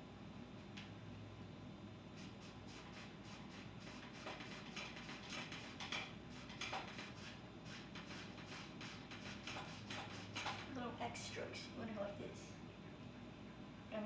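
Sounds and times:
low room hum: 0.0 - 14.0
brush stroking paint on canvas: 2.2 - 10.6.

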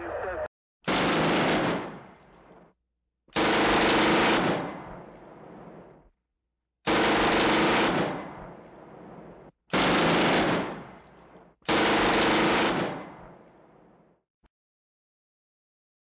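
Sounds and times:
automatic gunfire bursts echoing: 0.9 - 2.0, 3.4 - 4.7, 6.9 - 8.3, 9.7 - 10.9, 11.7 - 13.1.

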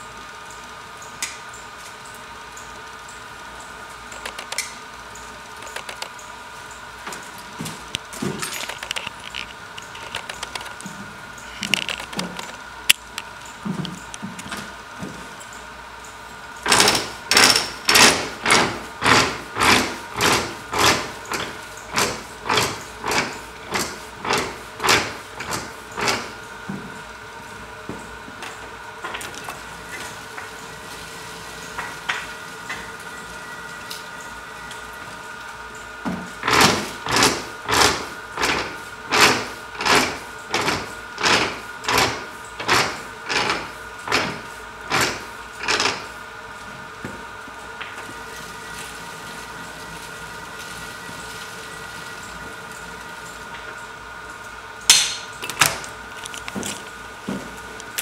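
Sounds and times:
steady high hum: 0.0 - 58.0
small clicks and knocks: 4.1 - 4.7, 5.6 - 6.2, 7.9 - 10.9, 11.5 - 14.6
weaving loom clacking: 16.6 - 26.3, 36.4 - 46.0.

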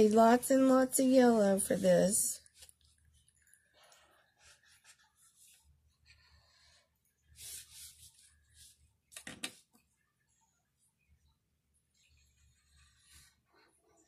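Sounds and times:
marker scratching on paper: 4.0 - 6.8.

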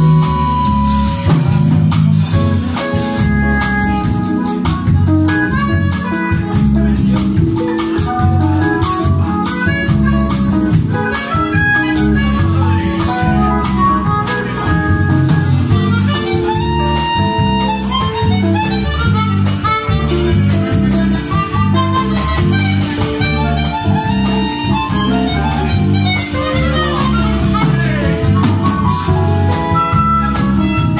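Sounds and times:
harmonica melody: 0.0 - 30.9
jazz band playing: 0.0 - 30.9.

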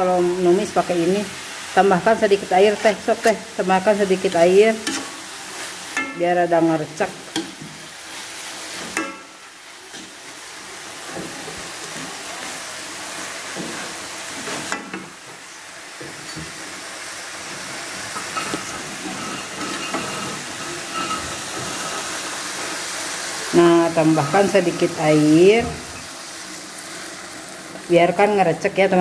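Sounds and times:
greens sizzling in a wok: 0.0 - 29.0
metal spatula scraping pan: 18.1 - 22.4.

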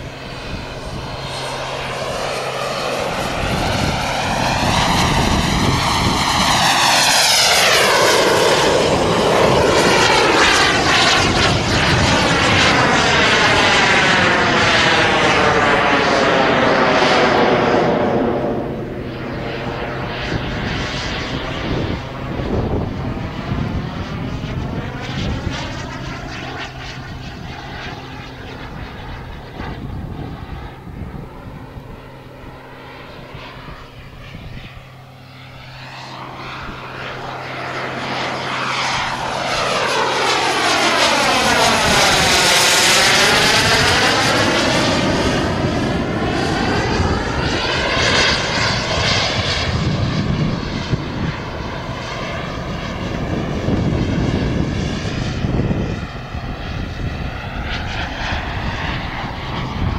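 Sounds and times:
jet passing with whoosh: 0.0 - 59.9
model jet turbine whining: 0.0 - 59.9.

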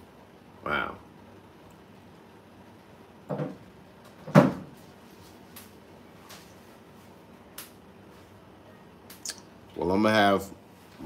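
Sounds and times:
cupboard door banging shut: 4.2 - 4.7.

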